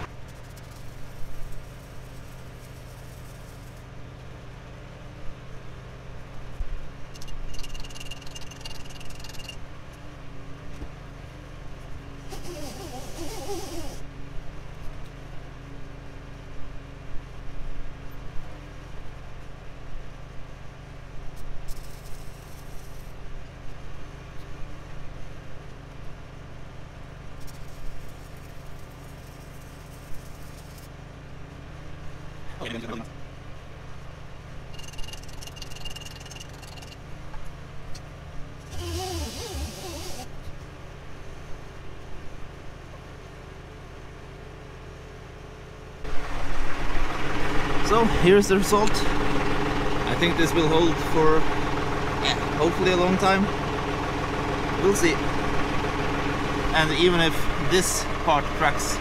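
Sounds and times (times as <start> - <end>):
steady low hum: 0.0 - 59.0
arc welding crackling hiss: 0.3 - 3.8, 21.7 - 23.1.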